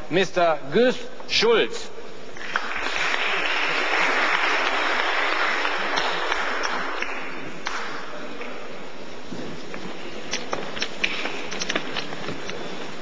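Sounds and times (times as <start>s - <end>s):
audience applauding: 2.4s - 8.1s.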